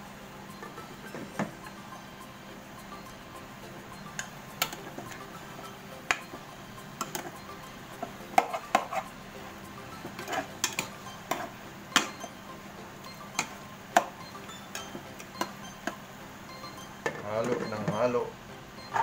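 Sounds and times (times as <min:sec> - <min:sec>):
metal ladle scraping a pan: 0:08.4 - 0:09.2.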